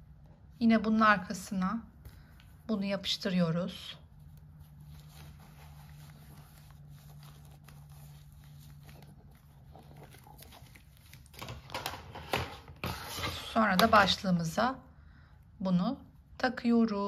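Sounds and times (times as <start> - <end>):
low steady hum: 0.0 - 17.0
mop pad rustling and clicking: 8.8 - 14.2.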